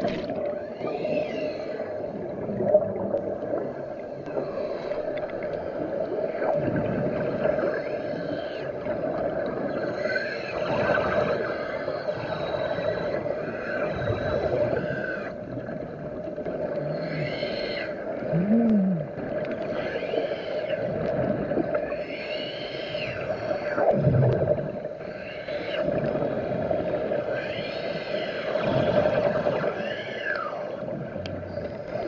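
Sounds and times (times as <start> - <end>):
underwater hum: 0.0 - 32.0
gurgling: 18.2 - 19.2.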